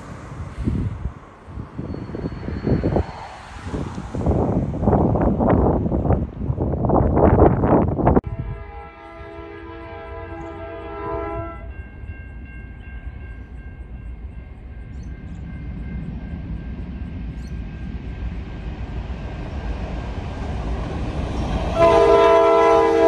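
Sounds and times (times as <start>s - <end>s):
locomotive horn: 8.2s - 11.8s, 21.6s - 23.0s.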